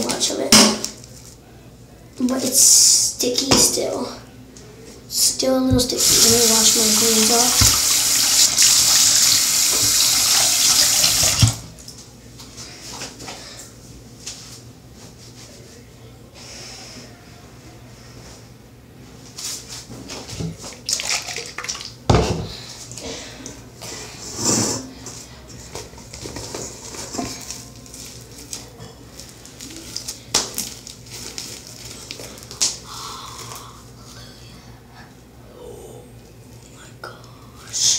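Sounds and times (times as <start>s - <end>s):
tap water running: 5.7s - 11.7s, 20.8s - 22.0s.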